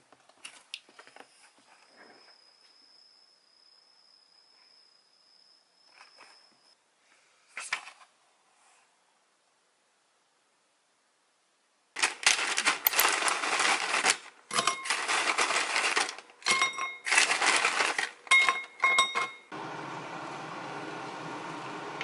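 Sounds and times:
rice crisps crackling and rustling: 0:12.0 - 0:18.3
porcelain bowl ringing: 0:18.3 - 0:19.5.

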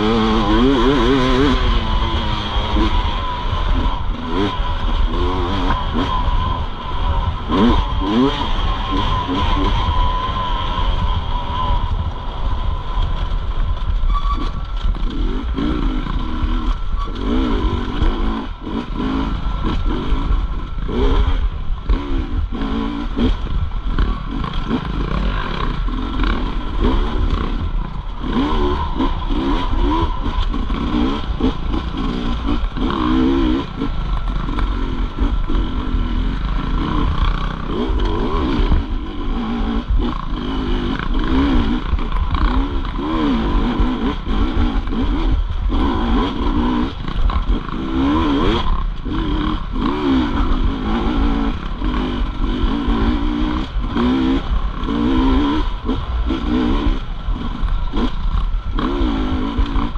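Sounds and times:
dirt bike engine revving: 0:00.0 - 0:59.9
heavy low rumble: 0:00.0 - 0:59.9.

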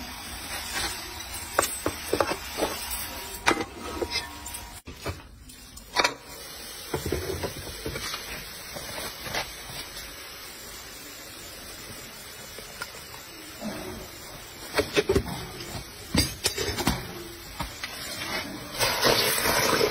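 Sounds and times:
steady hiss: 0:05.3 - 0:19.9.

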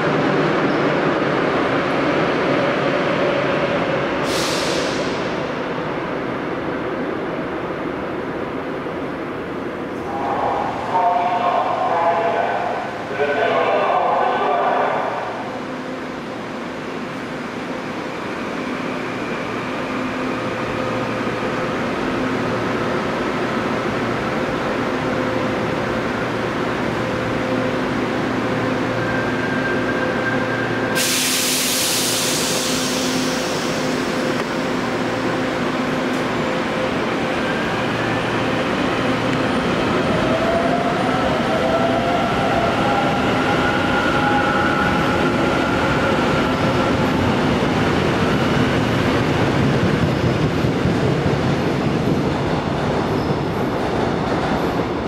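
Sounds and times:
compressed-air hiss: 0:04.2 - 0:05.2, 0:31.0 - 0:34.0.

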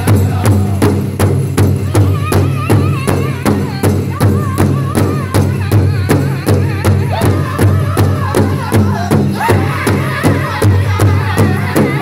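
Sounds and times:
high wavering group singing: 0:00.0 - 0:12.0
large hide drum beat: 0:00.0 - 0:12.0.

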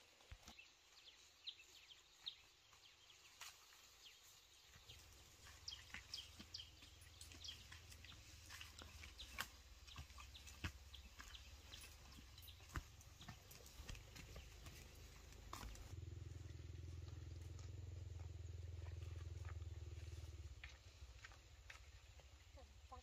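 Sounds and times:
footsteps on dirt and leaves: 0:00.2 - 0:16.0, 0:16.7 - 0:22.4
low steady rumble: 0:12.6 - 0:22.4.

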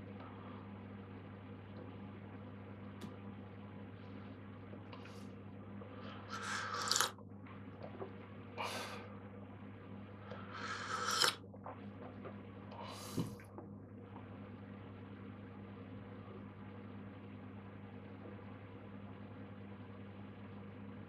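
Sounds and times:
steady low hum: 0:00.0 - 0:21.0
person slurping tea: 0:06.1 - 0:07.2, 0:10.4 - 0:11.4.

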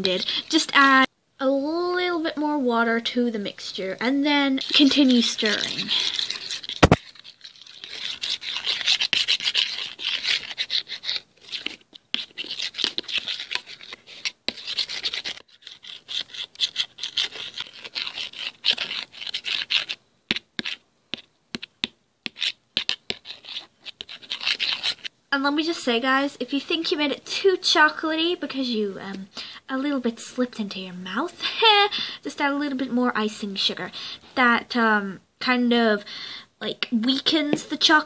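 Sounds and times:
utensil scraping metal tin: 0:04.5 - 0:20.0.

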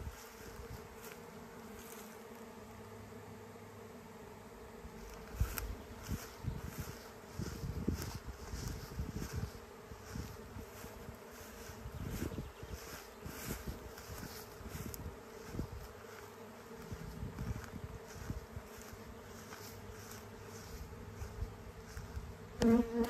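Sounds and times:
bee swarm humming: 0:00.0 - 0:23.0
wind rumble on microphone: 0:05.3 - 0:15.9, 0:16.8 - 0:18.9.

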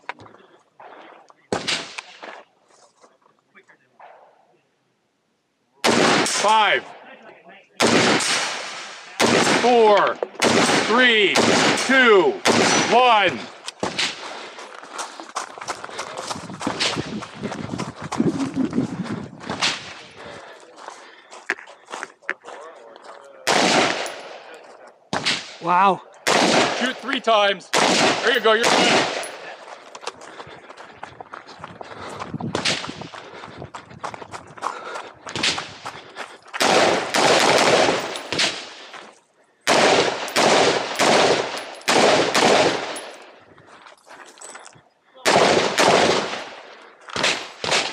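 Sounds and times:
rifle shots echoing: 0:01.5 - 0:02.2, 0:05.8 - 0:07.0, 0:07.8 - 0:14.4, 0:23.4 - 0:25.6, 0:26.2 - 0:29.6, 0:36.6 - 0:39.0, 0:39.6 - 0:43.4, 0:45.2 - 0:47.9
running footsteps on gravel: 0:13.1 - 0:23.4, 0:28.3 - 0:39.4, 0:41.0 - 0:45.0.

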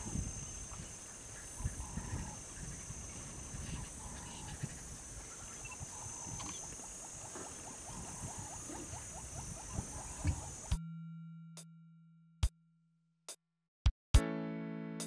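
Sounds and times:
high-pitched insect drone: 0:00.0 - 0:01.0.

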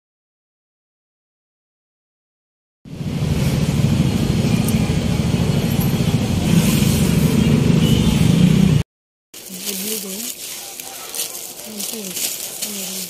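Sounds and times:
vehicle engines running: 0:02.9 - 0:08.8, 0:09.4 - 0:13.0
people talking in street: 0:09.4 - 0:13.0.

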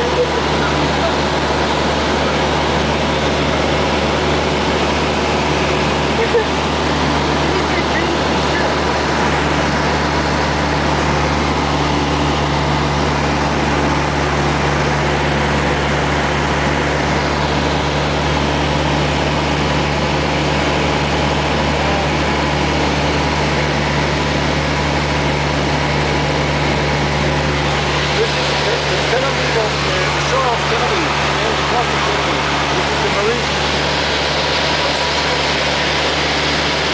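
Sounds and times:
broad rushing noise: 0:00.0 - 0:36.9
propeller plane engine droning: 0:00.0 - 0:36.9.

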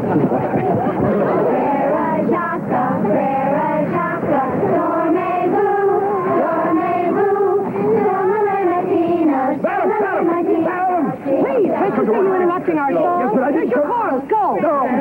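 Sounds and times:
girls singing in chorus: 0:00.7 - 0:12.6.

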